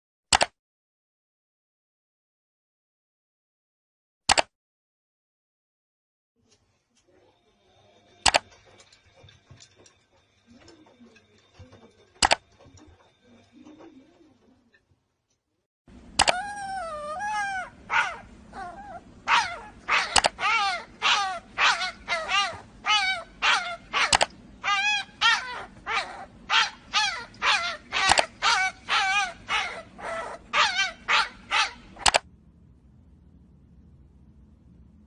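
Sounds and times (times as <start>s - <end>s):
sharp click: 0.3s - 0.6s, 4.3s - 4.5s, 16.2s - 16.4s, 32.0s - 32.2s.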